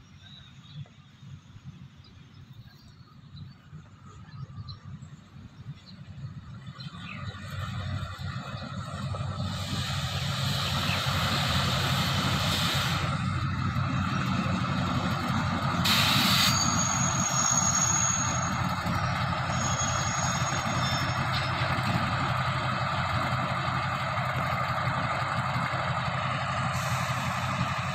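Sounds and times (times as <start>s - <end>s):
locomotive engine drone: 0.0s - 27.9s
high-pitched squeal: 8.4s - 24.0s
burst of hiss: 9.5s - 13.2s, 15.8s - 18.0s.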